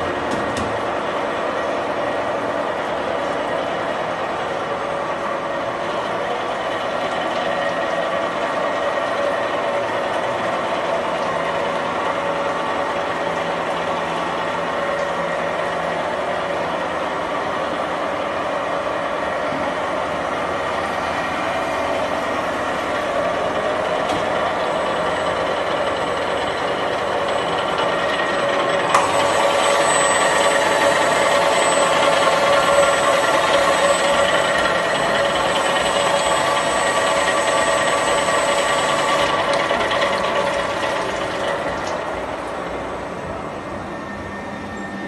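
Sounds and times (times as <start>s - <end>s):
machine humming with high whine: 0.0s - 45.0s.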